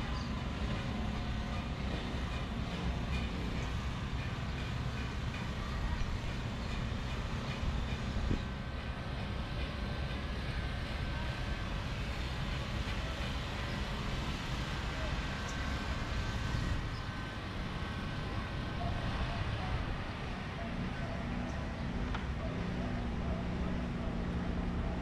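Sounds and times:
low traffic rumble: 0.0s - 25.0s
faint voices: 10.3s - 25.0s.

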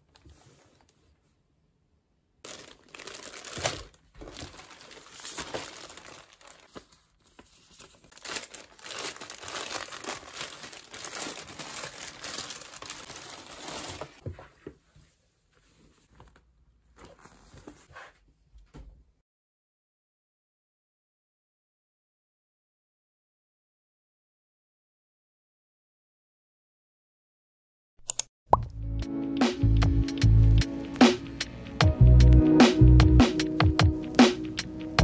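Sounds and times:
plastic bag crinkling: 2.4s - 14.2s.

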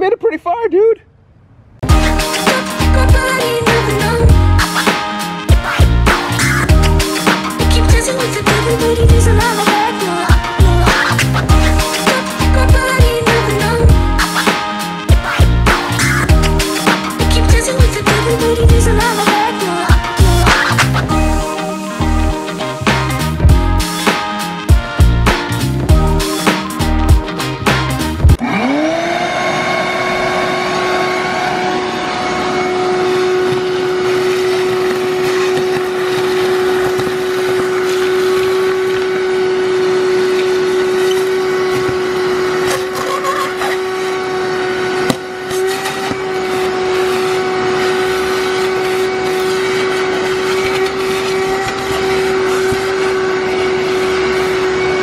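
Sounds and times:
wet dry vacuum running: 28.3s - 55.0s
debris rattling up vacuum hose: 33.0s - 54.0s.

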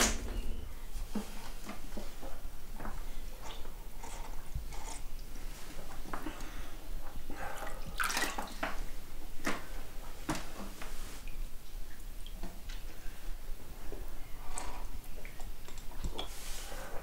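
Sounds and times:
liquid sloshing and dripping: 7.4s - 9.7s.

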